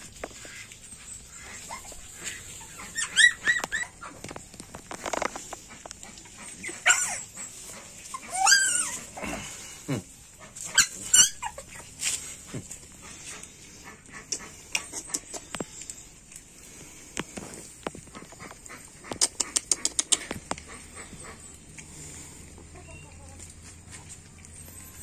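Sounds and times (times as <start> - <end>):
puppies scuffling clicks: 0.1 - 7.2, 14.2 - 22.0
puppies yipping: 0.1 - 9.7, 10.3 - 25.0.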